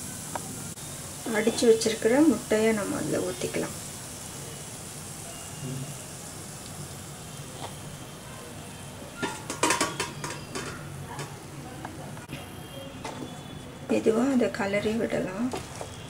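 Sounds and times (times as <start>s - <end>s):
egg sizzling in a frying pan: 0.0s - 16.0s
clicks and knocks against pan: 9.2s - 11.4s.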